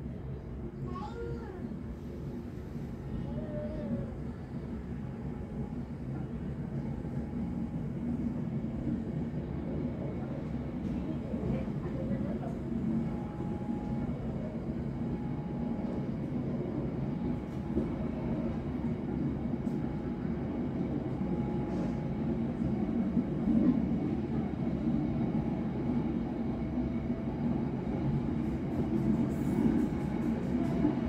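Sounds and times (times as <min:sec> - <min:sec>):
train wheels rumbling on rails: 0:00.8 - 0:31.0.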